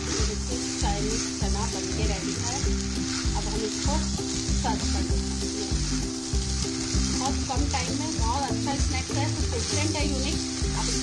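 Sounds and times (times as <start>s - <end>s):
background music: 0.0s - 11.0s
food sizzling in a pan: 0.0s - 11.0s
wooden spatula stirring: 0.0s - 11.0s.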